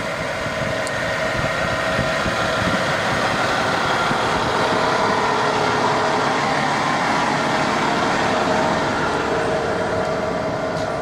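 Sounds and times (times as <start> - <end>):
diesel engine idling: 0.0 - 11.0.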